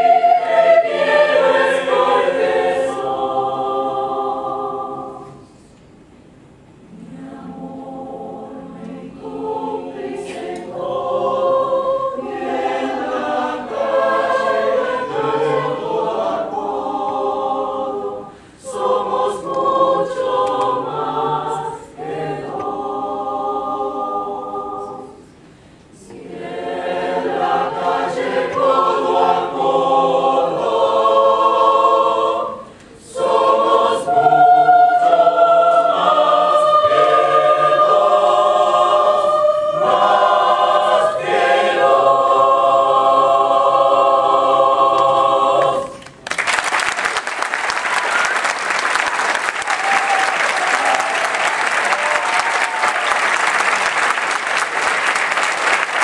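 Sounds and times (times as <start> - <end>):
choir singing a cappella: 0.0 - 5.8, 6.8 - 46.2
audience applause: 46.0 - 56.0.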